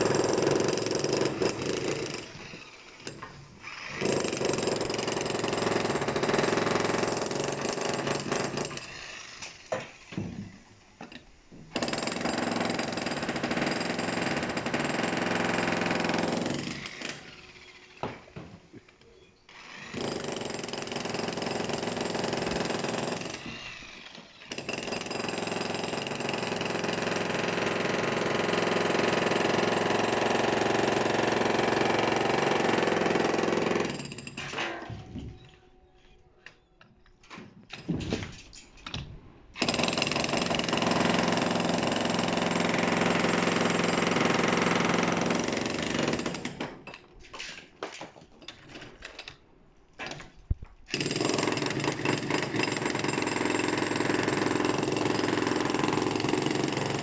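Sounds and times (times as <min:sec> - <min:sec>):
demolition hammer chiselling concrete: 0:00.0 - 0:08.9, 0:11.8 - 0:17.4, 0:19.6 - 0:34.6, 0:39.6 - 0:46.8, 0:50.9 - 0:57.0.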